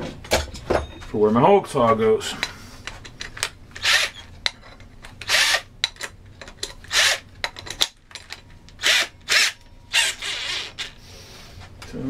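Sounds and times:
cordless drill bursts: 0:03.8 - 0:04.2, 0:05.2 - 0:05.7, 0:06.9 - 0:07.2, 0:08.8 - 0:10.9.

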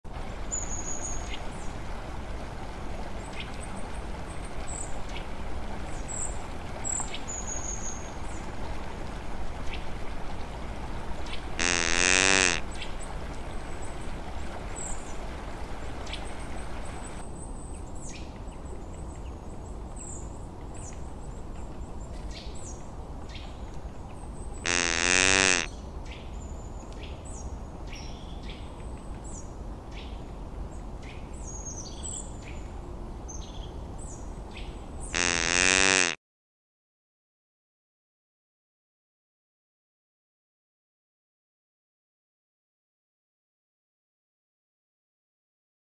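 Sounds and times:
loud wavering animal call: 0:11.6 - 0:12.6, 0:24.7 - 0:25.7, 0:35.2 - 0:36.2.

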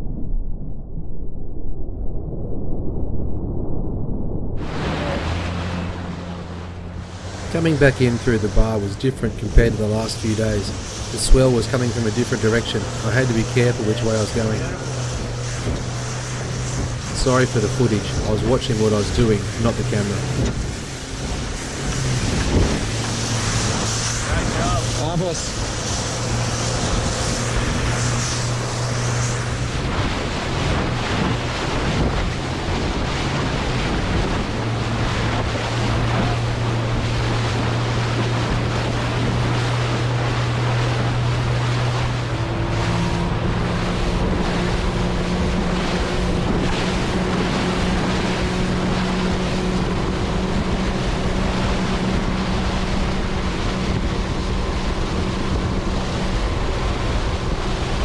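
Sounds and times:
wind buffeting microphone: 0:00.0 - 0:58.0
outboard motor at speed: 0:04.6 - 0:58.0
wake rushing: 0:04.6 - 0:58.0.

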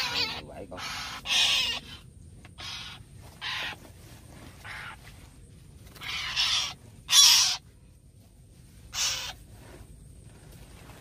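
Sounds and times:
harsh bird squawks: 0:00.0 - 0:04.0, 0:04.6 - 0:05.1, 0:05.9 - 0:07.7, 0:08.9 - 0:09.4.

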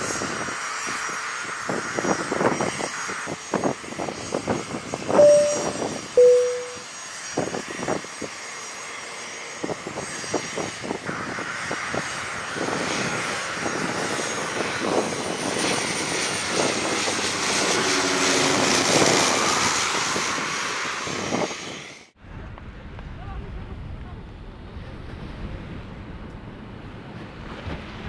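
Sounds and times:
propeller aircraft engines: 0:00.0 - 0:28.0
faint high whine: 0:05.2 - 0:06.9.

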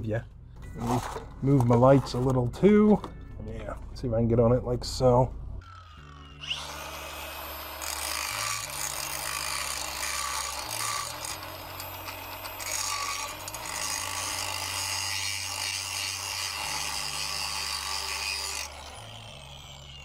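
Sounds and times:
angle grinder grinding steel: 0:05.6 - 0:20.0.

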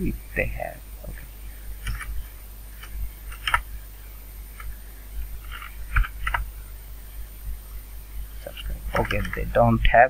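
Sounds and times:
low steady hum: 0:00.0 - 0:10.0
keyboard key clicks: 0:02.8 - 0:03.6.

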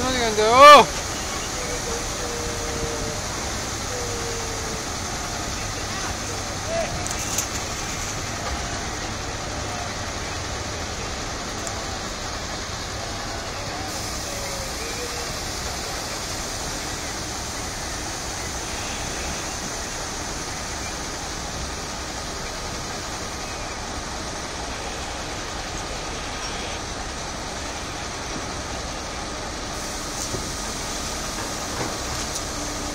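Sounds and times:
barge engine rumble and hiss: 0:00.0 - 0:32.9.

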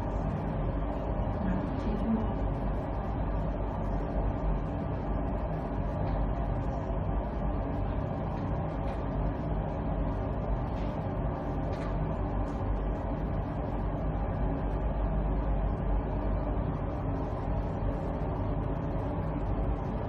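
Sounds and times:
low machine hum: 0:00.0 - 0:20.0.

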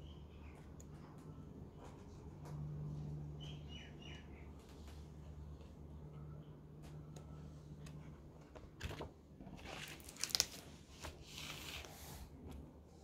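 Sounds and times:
faint low hum: 0:00.0 - 0:13.0
paper pages rustling: 0:08.5 - 0:12.2.

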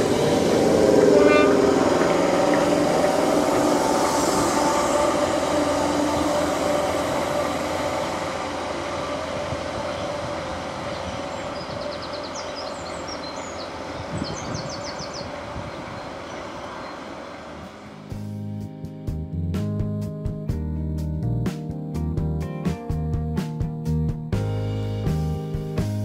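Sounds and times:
electric train running on rails: 0:00.0 - 0:20.6.

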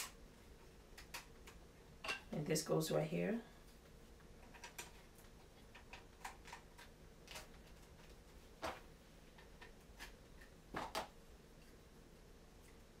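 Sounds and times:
plastic parts clicking together: 0:04.4 - 0:08.8.

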